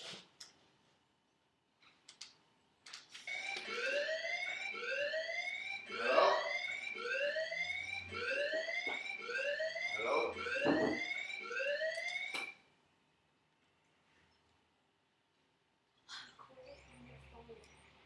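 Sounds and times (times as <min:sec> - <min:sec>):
fire alarm whooping: 0:03.2 - 0:12.7.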